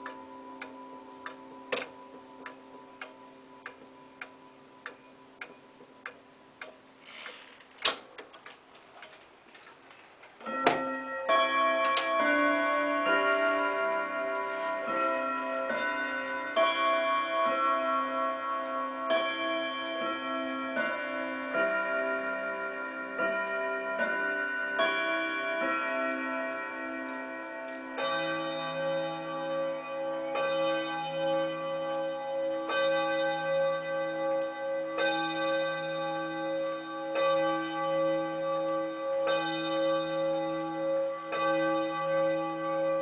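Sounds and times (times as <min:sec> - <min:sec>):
clock chime melody: 0:00.0 - 0:06.6, 0:10.4 - 0:43.0
loud clock click: 0:00.0 - 0:06.8
wall clock ticking: 0:00.0 - 0:09.3.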